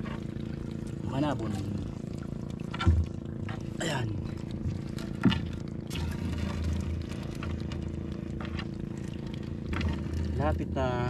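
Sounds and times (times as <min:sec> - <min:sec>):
steady low hum: 0:00.0 - 0:11.0
knocks against wooden hull: 0:02.6 - 0:03.6, 0:05.0 - 0:05.6.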